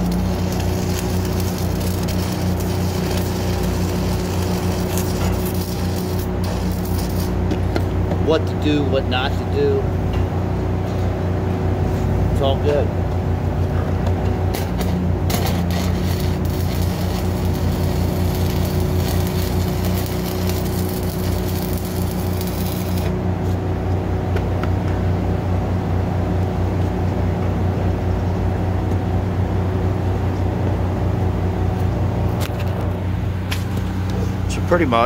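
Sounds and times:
welding arc crackling and hissing: 0.0s - 7.8s, 14.5s - 23.2s
engine hum: 0.0s - 35.0s.

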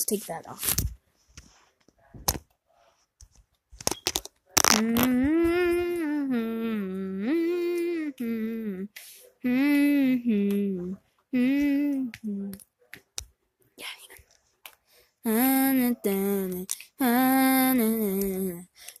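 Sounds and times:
person humming a tune: 4.7s - 12.6s, 15.3s - 18.7s.

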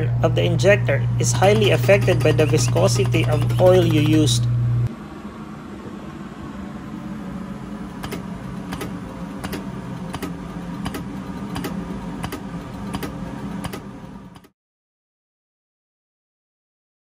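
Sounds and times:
test bench low hum: 0.0s - 14.5s
sharp clicks: 8.0s - 13.8s.

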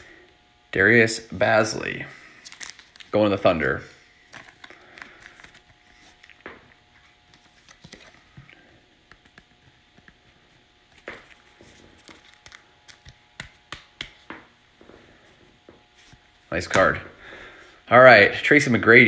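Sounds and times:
plastic sleeve crinkling: 2.4s - 3.2s, 4.2s - 8.5s, 10.9s - 13.7s.

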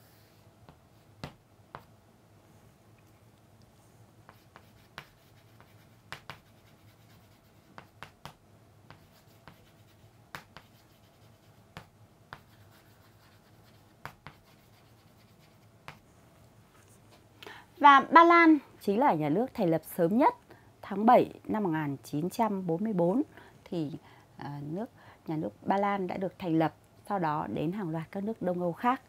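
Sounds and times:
chalk scratching on chalkboard: 4.3s - 16.0s.

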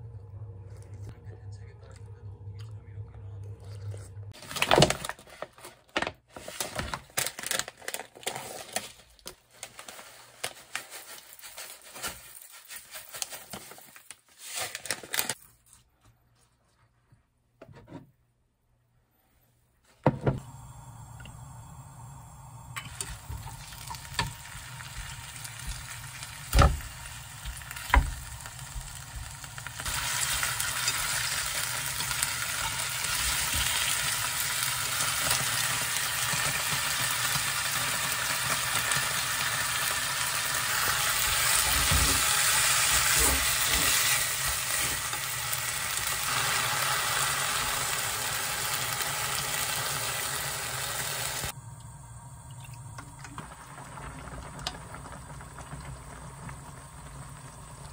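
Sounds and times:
food sizzling in a pan: 20.4s - 51.6s.

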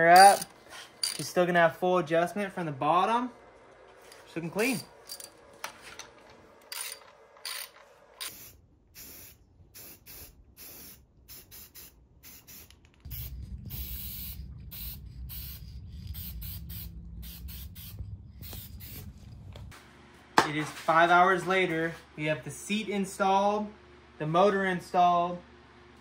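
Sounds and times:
spray paint can hissing: 8.2s - 19.1s
low rumble: 13.1s - 19.8s.

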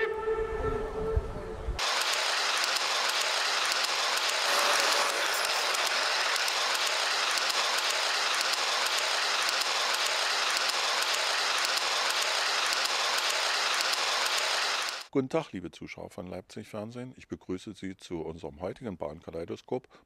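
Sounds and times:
train rushing along track: 1.7s - 15.1s
faint irregular clicks: 5.8s - 15.1s.

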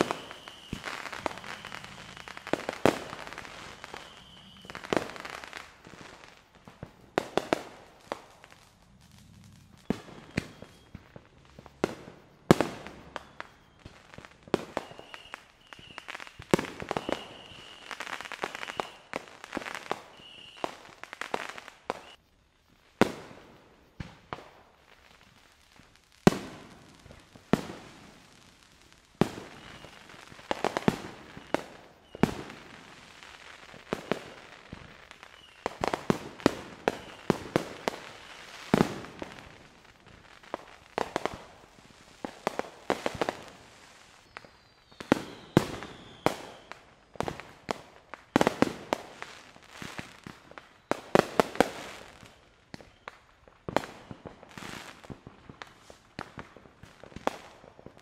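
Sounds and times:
fireworks bangs: 0.0s - 58.0s
small firework pops: 0.0s - 58.0s.

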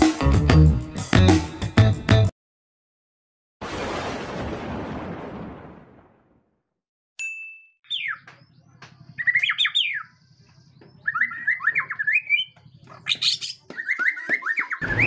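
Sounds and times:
bird singing whistles: 9.2s - 10.1s, 11.0s - 15.0s.

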